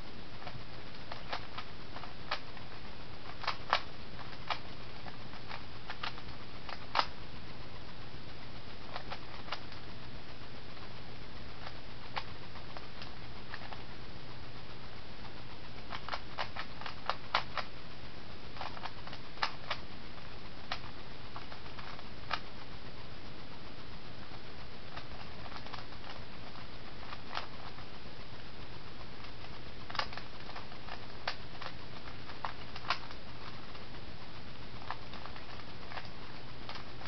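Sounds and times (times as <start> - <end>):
steady low hum: 0.0 - 37.0
plastic puzzle cube clicking: 15.9 - 17.7, 29.9 - 33.2.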